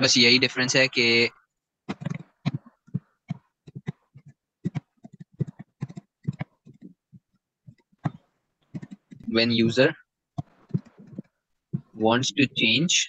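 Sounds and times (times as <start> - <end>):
stylus tapping on screen: 1.9 - 9.7, 10.3 - 12.0.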